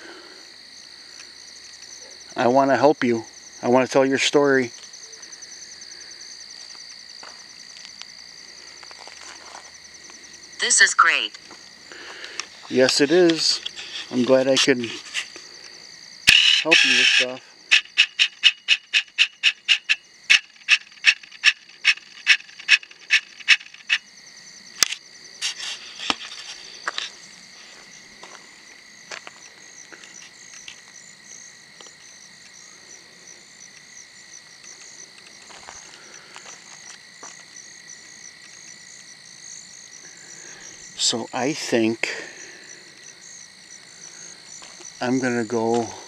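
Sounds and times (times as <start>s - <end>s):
frogs chirping: 0.0s - 46.0s
insects trilling: 0.0s - 46.0s
scattered clicks: 24.8s - 26.2s.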